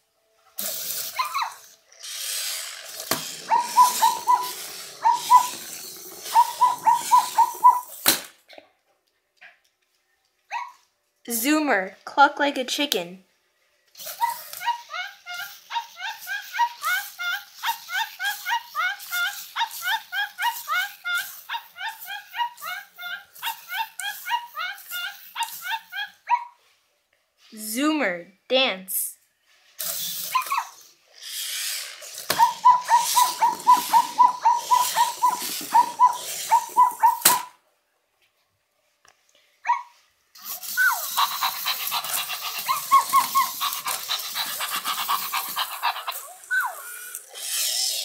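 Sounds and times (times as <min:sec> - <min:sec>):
toy robot electronic clucking: 0:00.6 - 0:08.0, 0:14.0 - 0:26.2, 0:29.8 - 0:37.5, 0:40.4 - 0:48.0.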